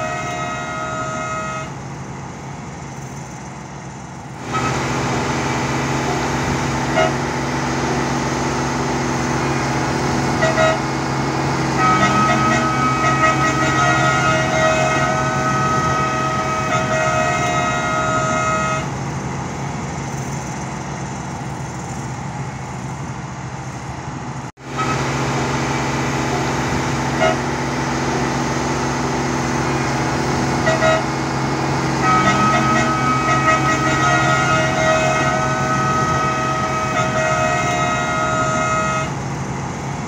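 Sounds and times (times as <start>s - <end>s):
horn-like warning tone: 0.0s - 1.9s, 4.4s - 19.6s, 24.6s - 39.4s
diesel engine running: 0.0s - 40.0s.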